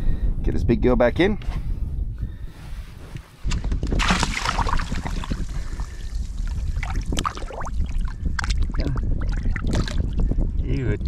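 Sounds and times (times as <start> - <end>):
water splashing and gurgling: 3.8 - 10.8.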